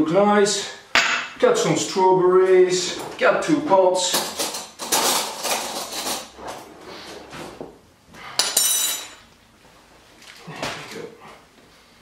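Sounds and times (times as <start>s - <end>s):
cutlery rattling in a drawer: 4.1s - 6.4s
metallic clink: 8.4s - 9.2s.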